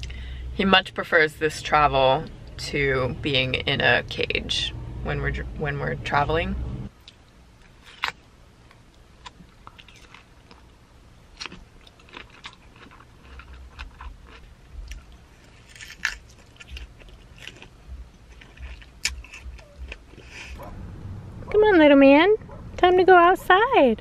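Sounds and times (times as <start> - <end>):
person biting and chewing fruit: 7.0 - 20.6.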